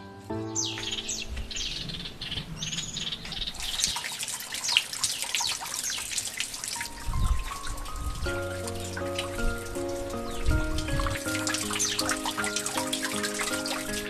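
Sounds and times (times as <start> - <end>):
birds chirping: 0.0 - 14.0
water splashing onto stone: 3.2 - 14.0.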